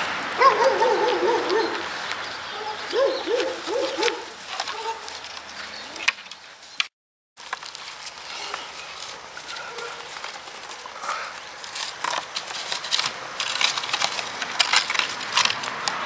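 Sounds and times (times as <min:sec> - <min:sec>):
dog yipping: 0:00.4 - 0:01.9, 0:02.5 - 0:05.2, 0:09.5 - 0:10.1.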